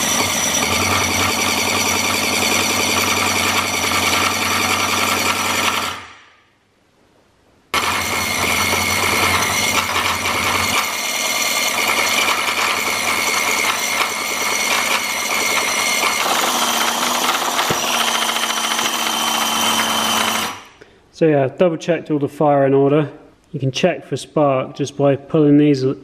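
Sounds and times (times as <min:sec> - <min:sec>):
model engine cranking with whine: 0:00.0 - 0:06.1, 0:07.8 - 0:20.7.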